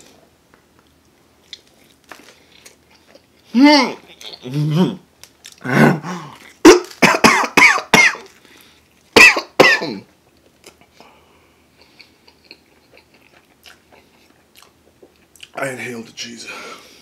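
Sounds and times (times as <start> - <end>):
man coughing hard: 6.6 - 8.3, 9.2 - 10.0.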